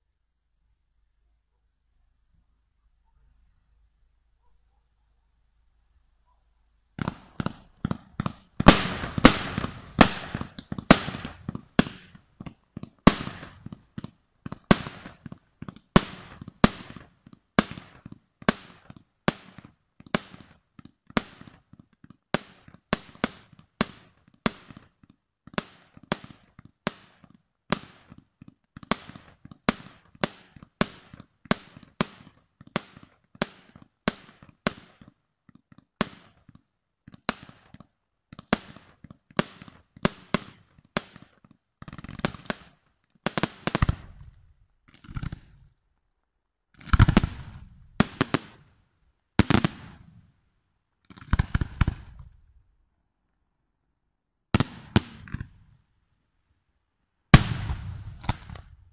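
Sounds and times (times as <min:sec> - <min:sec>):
firework crackling barrage: 0:07.0 - 0:25.0, 0:38.4 - 0:45.8, 0:46.8 - 0:48.7, 0:49.4 - 0:50.1, 0:51.1 - 0:52.5, 0:54.6 - 0:55.6, 0:57.3 - 0:58.9.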